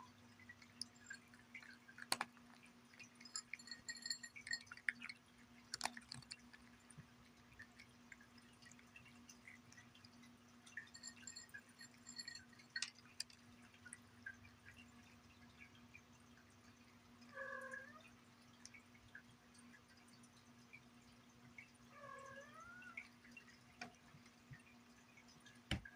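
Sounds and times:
cat crunching kibble: 0.6s - 6.9s.

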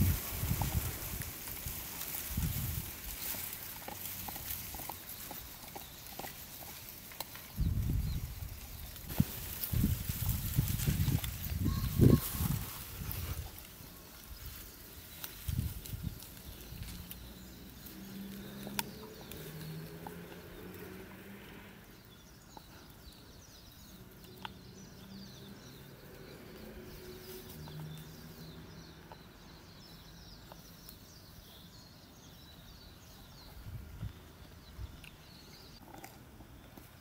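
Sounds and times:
small birds twittering: 0.0s - 37.0s
puppy chewing: 3.0s - 7.6s.

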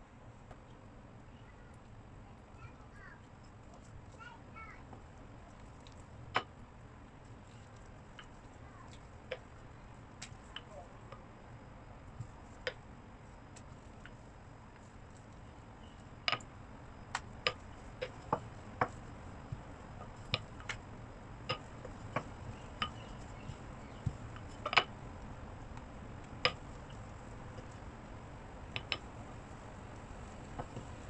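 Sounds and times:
rolling pin clicks and knocks: 21.5s - 25.0s, 28.7s - 29.1s.

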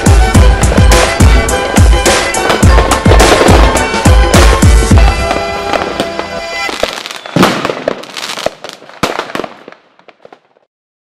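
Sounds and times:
music with a heavy beat: 0.0s - 6.4s
fireworks bangs and crackles: 0.0s - 10.7s.

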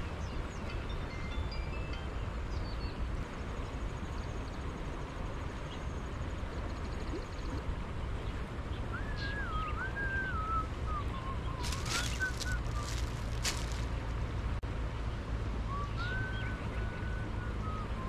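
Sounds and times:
low wind rumble: 0.0s - 18.0s
plastic bag crackling: 11.6s - 14.0s.

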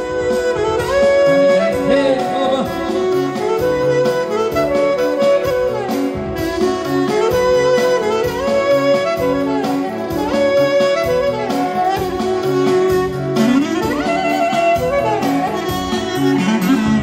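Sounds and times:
band backing with steady beat: 0.0s - 17.0s
clarinet melody: 0.0s - 17.0s.

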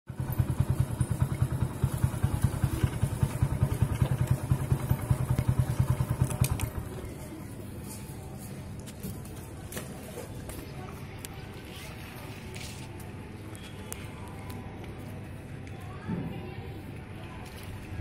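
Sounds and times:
motorcycle engine idling: 0.1s - 7.3s.

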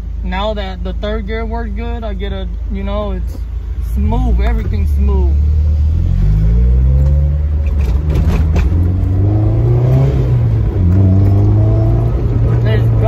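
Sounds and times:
wind and road rumble: 0.0s - 13.0s
car engine revving: 3.4s - 13.0s.

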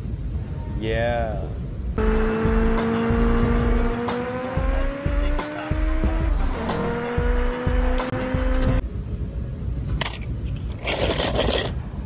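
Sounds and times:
car engine running: 2.0s - 8.8s
music with a steady beat: 2.0s - 8.8s.

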